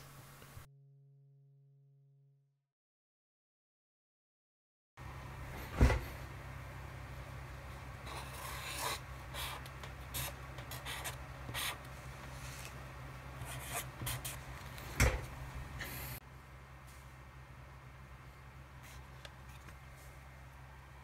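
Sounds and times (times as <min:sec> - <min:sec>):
steady low hum: 0:05.0 - 0:21.0
marker scratching on paper: 0:08.1 - 0:12.8, 0:13.4 - 0:14.9.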